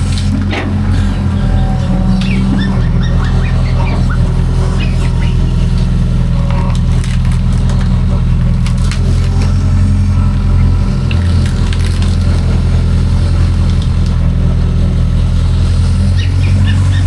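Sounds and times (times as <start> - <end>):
excavator diesel engine running: 0.0 - 17.0
wood cracking and snapping: 5.0 - 9.6, 11.0 - 14.3.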